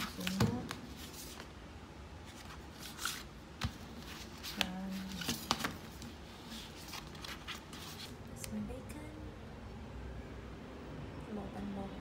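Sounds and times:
paper rustling: 0.0s - 1.6s, 2.2s - 8.2s.

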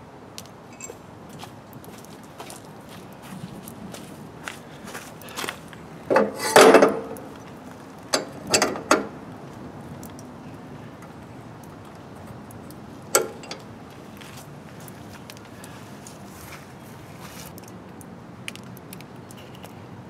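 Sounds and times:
sharp metal clanks: 0.7s - 1.0s, 6.1s - 7.3s
metal scraping: 6.1s - 7.3s.

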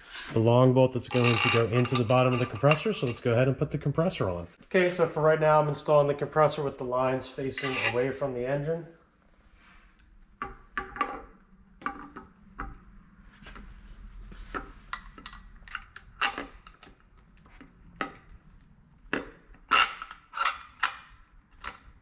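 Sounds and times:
metal clinks and knocks: 14.6s - 16.9s.

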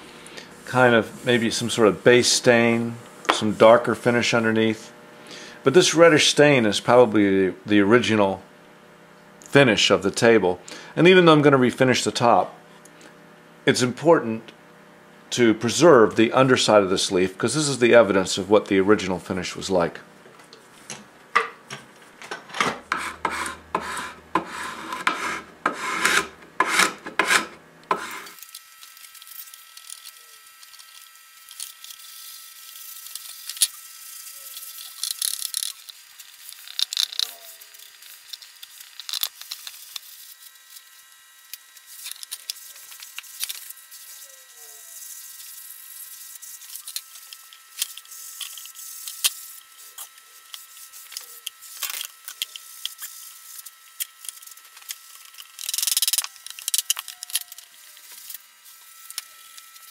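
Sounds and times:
rasping hand tool on wood: 22.9s - 28.4s.

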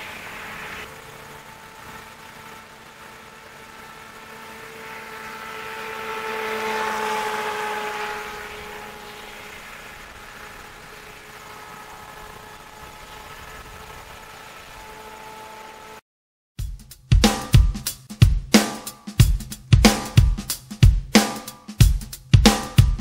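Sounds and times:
water hissing: 0.0s - 15.0s
rc boat motor whine: 0.0s - 16.0s.

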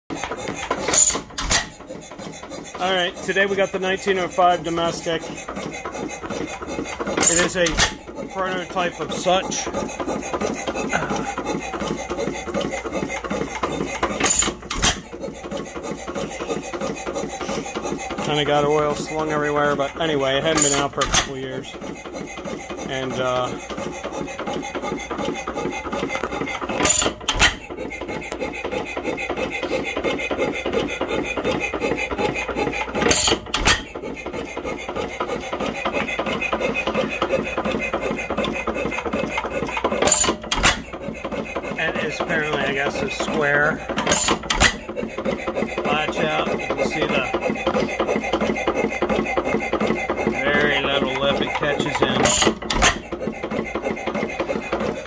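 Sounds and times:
old engine mechanical clatter: 0.1s - 55.0s.

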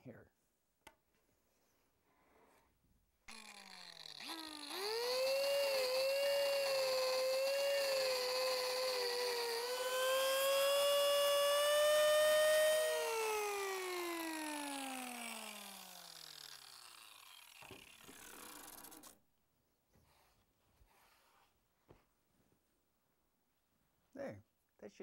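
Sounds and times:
power tool cutting into log: 3.3s - 19.2s.

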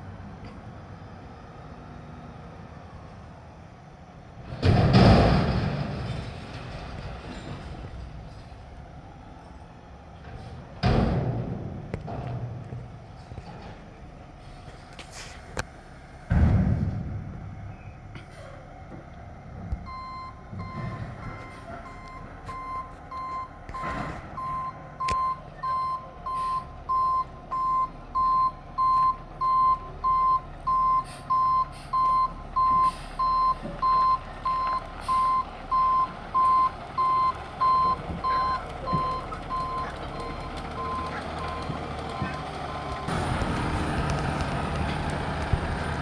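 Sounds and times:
diesel engine running: 0.0s - 46.0s
reversing alarm beeping: 19.8s - 43.2s.

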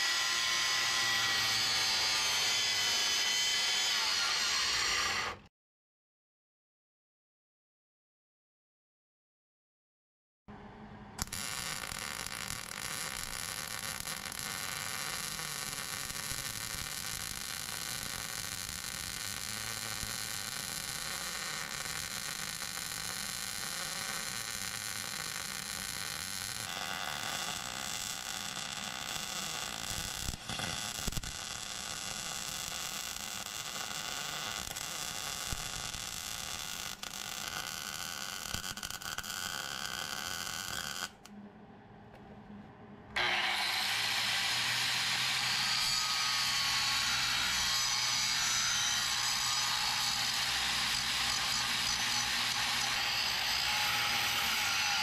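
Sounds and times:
angle grinder grinding steel: 0.0s - 5.4s, 43.2s - 55.0s
welder crackling and buzzing: 0.0s - 5.5s, 11.2s - 41.3s, 43.2s - 55.0s.

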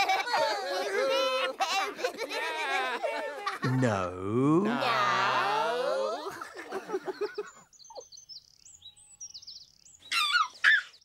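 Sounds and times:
character voice calling out: 3.6s - 5.5s
giggly syllables: 3.6s - 5.8s
faint birdsong: 6.2s - 11.0s.

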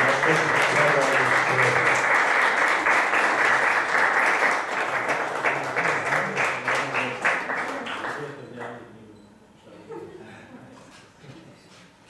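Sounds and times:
audience applauding: 0.0s - 8.8s.

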